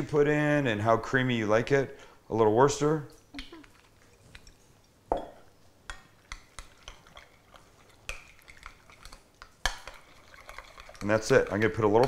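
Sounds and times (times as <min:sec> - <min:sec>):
utensil clinking glass bowl: 0:04.0 - 0:12.0
bottle set down with a knock: 0:05.1 - 0:05.4
stirring thick dressing: 0:05.6 - 0:12.0.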